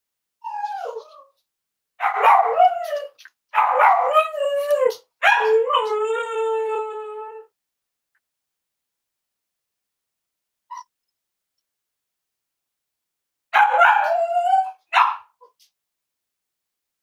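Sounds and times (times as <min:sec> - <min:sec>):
dog howling: 0:02.1 - 0:07.5, 0:13.6 - 0:14.9.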